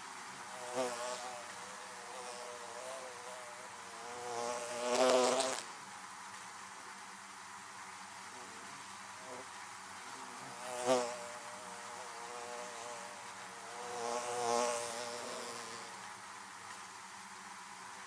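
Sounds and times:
honeybees buzzing: 0:00.4 - 0:05.7, 0:10.1 - 0:16.2.

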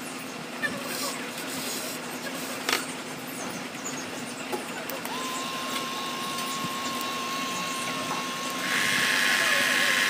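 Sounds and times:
small motor high whine: 0:04.8 - 0:10.0.

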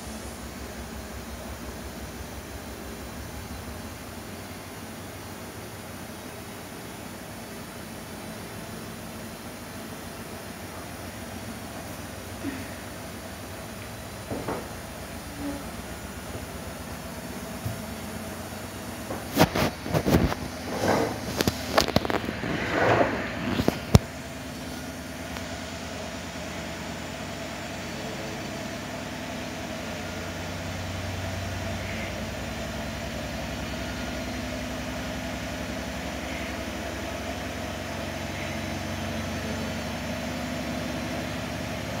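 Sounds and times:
washing machine humming: 0:00.0 - 0:42.0
rustles and knocks: 0:19.0 - 0:24.2.

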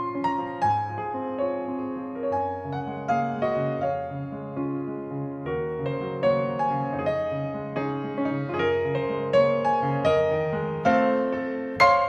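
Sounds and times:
soft piano music: 0:00.0 - 0:12.0.

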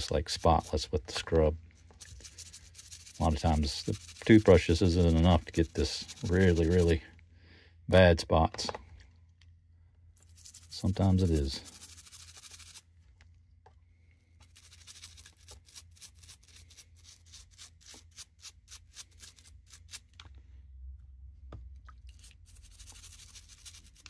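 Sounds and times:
toothbrush scrubbing metal: 0:01.9 - 0:07.0, 0:10.2 - 0:12.8, 0:14.4 - 0:20.1, 0:22.1 - 0:24.0.

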